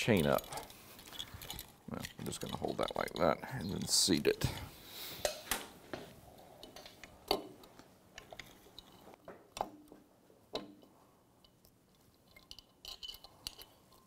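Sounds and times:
light metal clicks and knocks: 0.0s - 5.6s, 6.6s - 14.0s.

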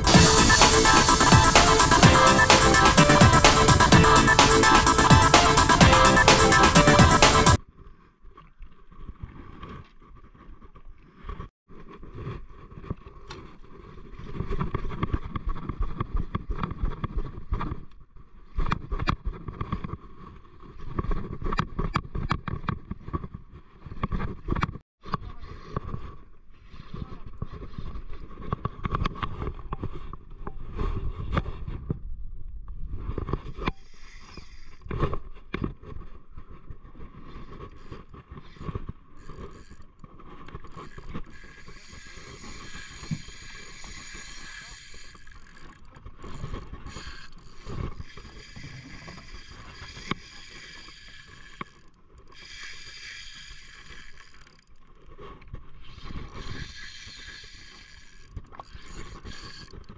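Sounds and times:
fishing reel gears whirring: 0.0s - 7.6s, 33.7s - 34.9s, 37.5s - 55.0s, 55.9s - 59.9s.

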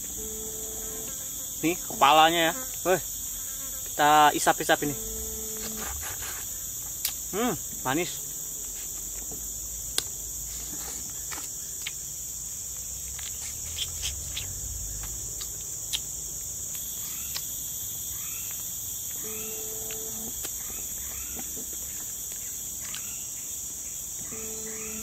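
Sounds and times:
insects chirring: 0.0s - 25.0s
eating clicks and smacks: 11.3s - 12.1s.

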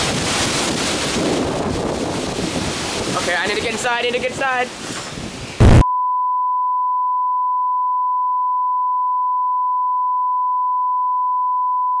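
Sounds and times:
steady test tone beep: 5.8s - 12.0s.

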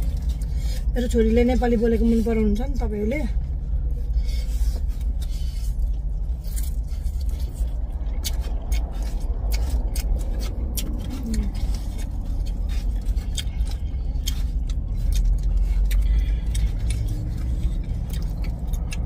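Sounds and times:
low rumble inside car: 0.0s - 19.0s
noodles slurped and chewed: 4.4s - 19.0s.

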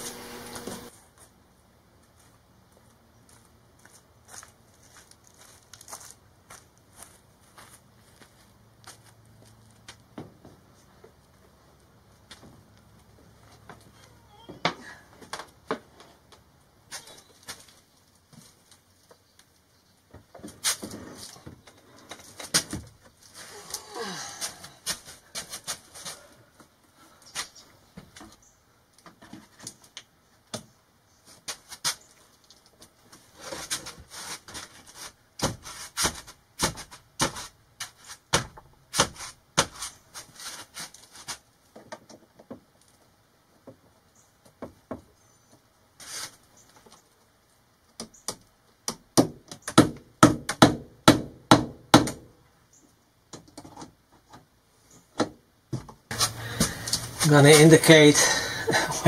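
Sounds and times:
loud sharp knocks: 49.2s - 52.3s.

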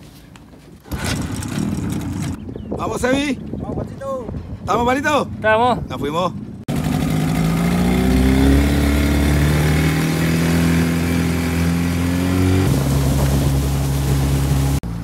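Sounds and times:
wind: 0.0s - 15.0s
outboard motor running: 0.8s - 2.4s, 6.7s - 15.0s
water noise: 6.8s - 15.0s.

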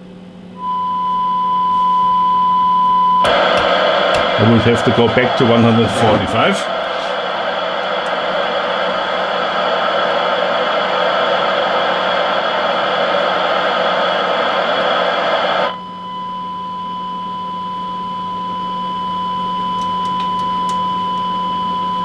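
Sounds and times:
steady test tone: 0.6s - 22.0s
radio receiver hissing: 3.2s - 15.8s.

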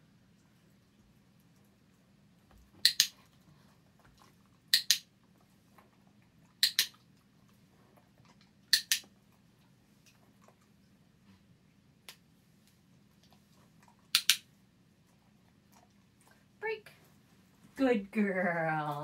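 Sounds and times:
dog-training clicker clicks: 2.8s - 3.2s, 4.7s - 5.0s, 6.6s - 6.9s, 8.7s - 9.1s, 14.1s - 14.4s.

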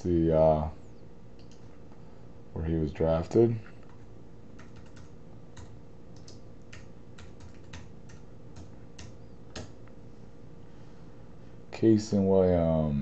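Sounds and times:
keyboard keystroke clicks: 1.4s - 1.7s, 4.6s - 9.8s.

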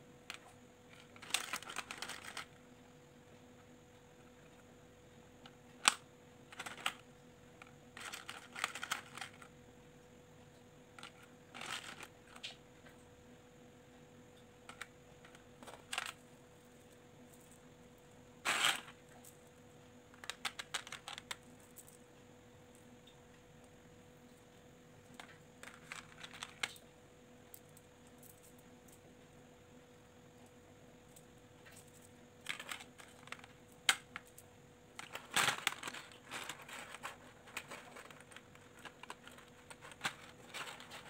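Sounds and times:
faint steady hum: 0.0s - 41.0s
plastic beads clicking and rattling: 0.3s - 2.6s, 5.8s - 7.0s, 7.9s - 9.5s, 11.0s - 12.6s, 14.7s - 17.6s, 18.5s - 19.3s, 20.1s - 22.0s, 25.1s - 26.9s, 31.1s - 41.0s.

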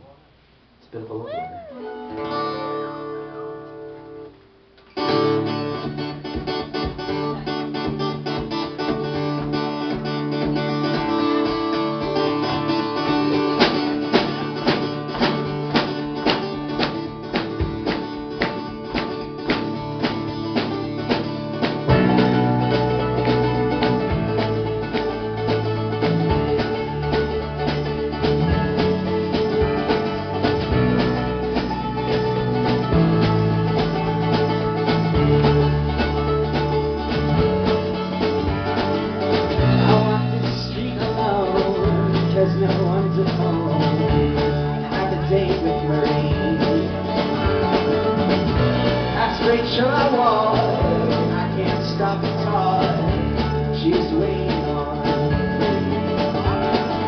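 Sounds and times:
folk-rock band playing: 1.0s - 57.0s
man singing: 39.6s - 47.3s, 49.0s - 57.0s.

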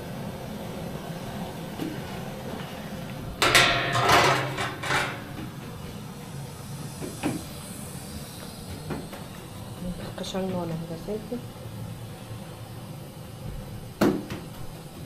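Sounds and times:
gas burner hissing: 0.0s - 15.0s
metal lid clattering and scraping: 3.4s - 5.4s.

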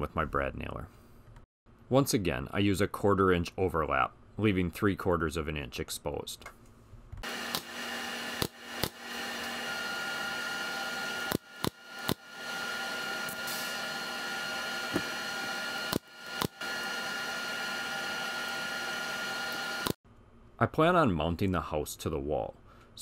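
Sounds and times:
pneumatic nailer shots into plywood: 7.2s - 7.8s, 8.4s - 9.1s, 11.3s - 12.3s, 15.9s - 16.6s.

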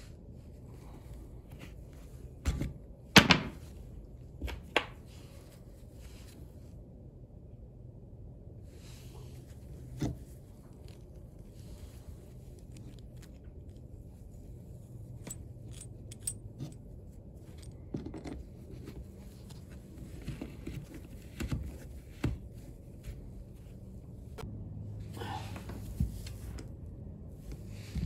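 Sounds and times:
metal fitting clinking and scraping: 15.2s - 16.9s.

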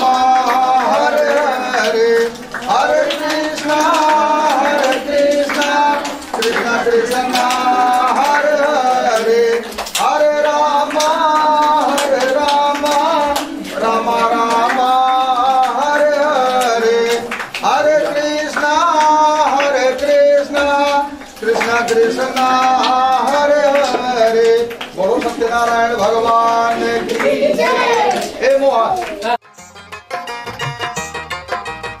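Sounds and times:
person singing a hymn: 0.0s - 29.3s
hands clapping: 0.0s - 32.0s.

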